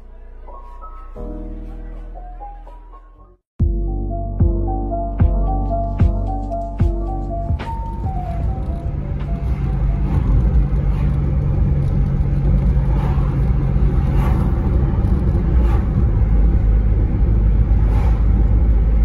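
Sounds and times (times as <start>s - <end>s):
car interior road rumble: 6.2s - 19.0s.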